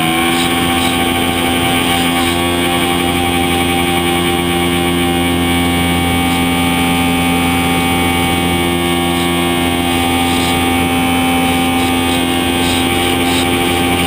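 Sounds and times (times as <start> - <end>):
model airplane motor whine: 0.0 - 14.0.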